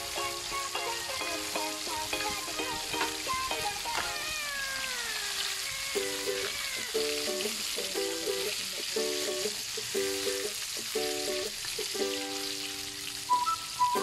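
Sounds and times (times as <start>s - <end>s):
background music: 0.0s - 4.2s
fish sizzling in hot oil: 0.0s - 14.0s.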